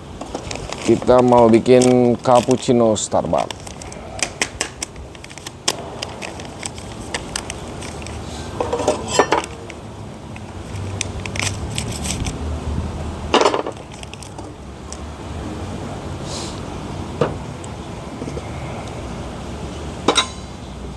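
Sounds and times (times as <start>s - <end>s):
sachet crinkling: 0.3s - 8.2s, 10.6s - 12.4s, 13.8s - 14.4s.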